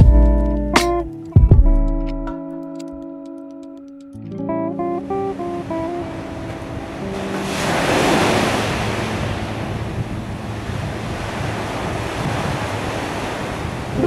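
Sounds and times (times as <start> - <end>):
ocean surf breaking on beach: 5.1 - 14.0.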